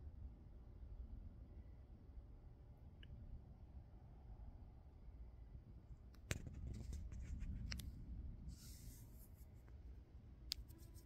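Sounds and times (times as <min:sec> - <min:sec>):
low background rumble: 0:00.0 - 0:11.0
scratchy rustle: 0:08.5 - 0:09.7.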